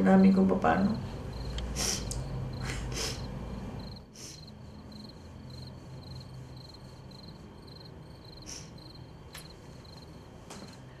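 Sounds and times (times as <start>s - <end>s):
low steady hum: 0.0s - 11.0s
cricket chirping: 1.0s - 11.0s.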